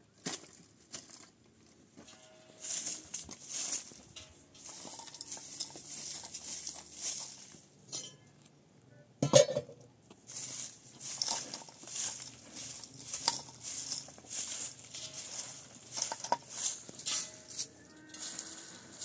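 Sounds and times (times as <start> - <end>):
broom sweeping dirt: 2.0 - 7.8, 10.2 - 19.0.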